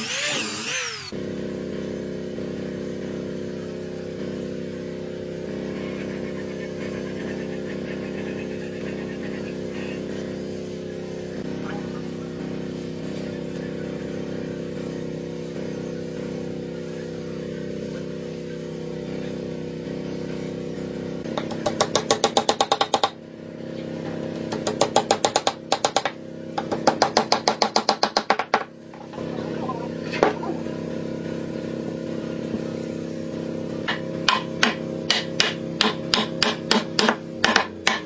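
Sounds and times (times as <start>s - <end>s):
machine humming: 0.0s - 21.8s, 29.0s - 35.8s.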